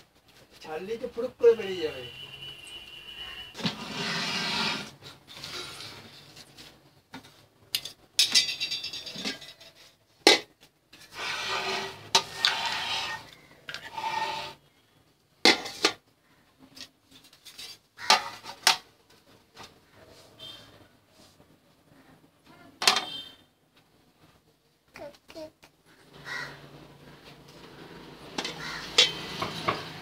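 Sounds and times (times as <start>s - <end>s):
cookware rubbing and scraping: 3.2s - 6.7s, 11.0s - 14.7s, 27.7s - 30.0s.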